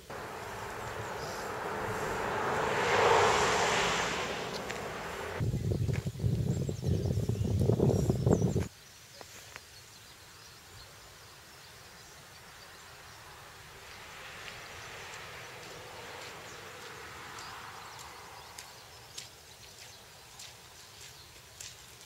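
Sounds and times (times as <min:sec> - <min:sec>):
car driving past: 0:00.0 - 0:05.4, 0:13.6 - 0:19.0.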